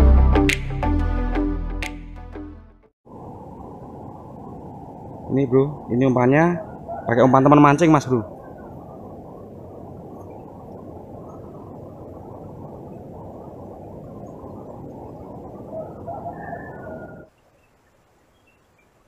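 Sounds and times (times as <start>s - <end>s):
low outdoor rushing noise: 3.1s - 19.0s.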